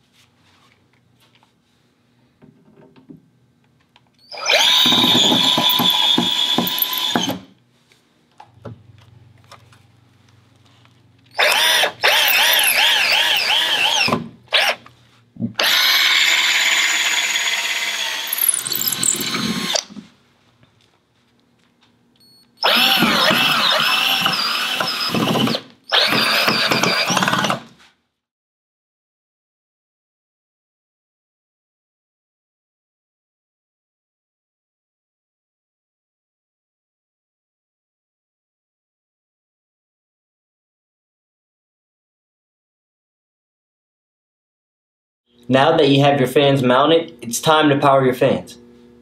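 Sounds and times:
cordless drill drilling into concrete: 4.3 - 7.5, 11.4 - 14.8, 15.6 - 19.9, 22.6 - 27.7.

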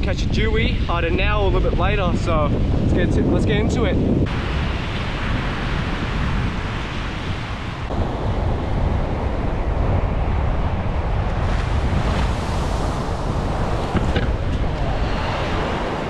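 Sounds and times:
wind buffeting microphone: 0.0 - 16.0
ocean surf breaking: 4.2 - 16.0.

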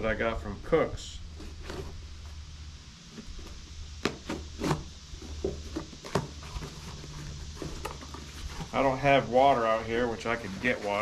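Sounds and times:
steady low hum: 0.0 - 11.0
cardboard box scraping and crackling: 1.4 - 2.0, 3.2 - 11.0.

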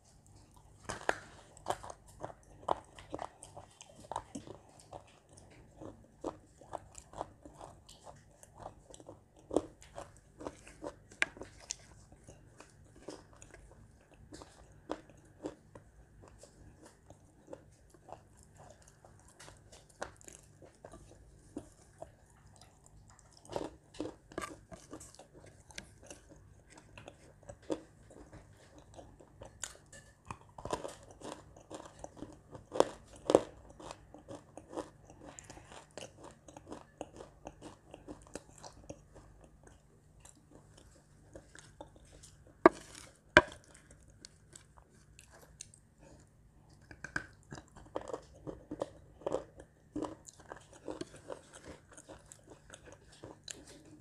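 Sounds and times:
chewing and crunching clay: 0.0 - 54.0.

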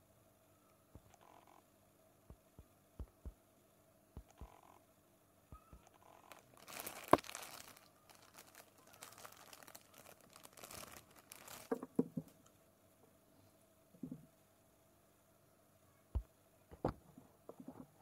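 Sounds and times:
plastic bag crinkling: 6.1 - 12.5.

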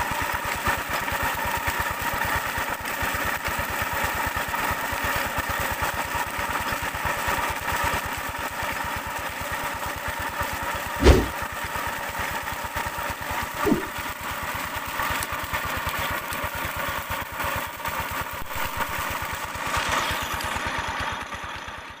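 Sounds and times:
water gushing from pipe: 0.0 - 21.4
brief thumps: 11.0 - 11.4, 13.6 - 14.0.

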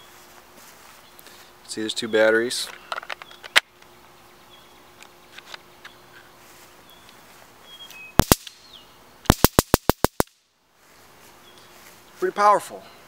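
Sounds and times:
stun gun spark snapping: 8.2 - 8.6, 9.3 - 10.4.

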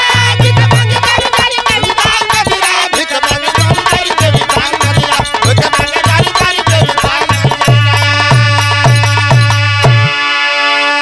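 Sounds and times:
quick drum strokes: 0.0 - 10.2
folk melody: 0.0 - 11.0.

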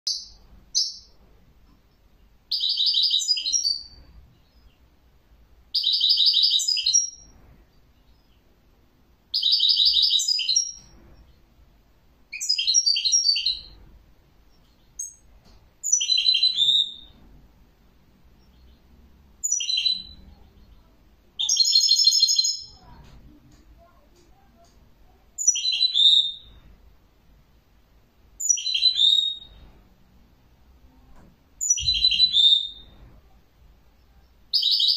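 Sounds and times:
bird twittering song: 0.1 - 4.9, 5.7 - 8.6, 9.3 - 11.5, 12.3 - 13.8, 14.4 - 17.2, 18.3 - 23.0, 25.4 - 26.6, 28.4 - 29.7, 31.6 - 33.0, 33.9 - 34.9.

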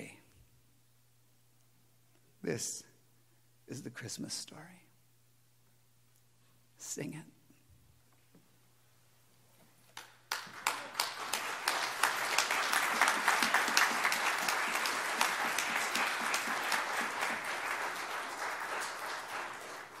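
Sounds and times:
congregation applauding: 10.0 - 20.0.

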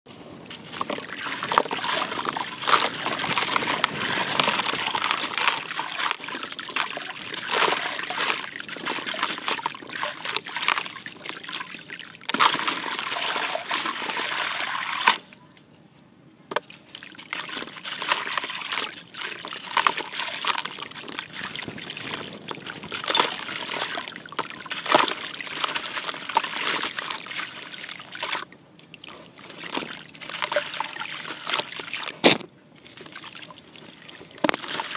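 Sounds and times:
concrete lumps crackling: 0.5 - 11.4
concrete grit splashing into water: 0.5 - 15.3, 16.6 - 28.5, 29.1 - 34.9.

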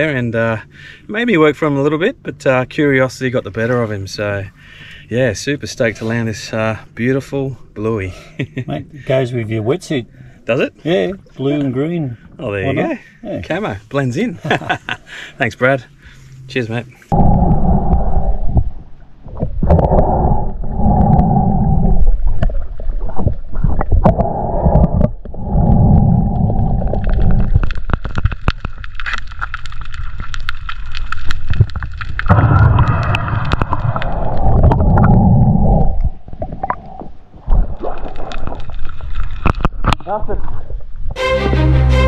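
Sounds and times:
muffled rushing gurgling water: 17.0 - 41.1.

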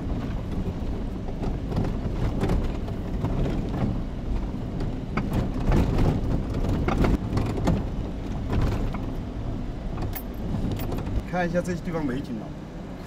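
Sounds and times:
knocks and rattles over rocks: 0.0 - 9.2
vehicle engine and tyre rumble: 0.0 - 13.0.

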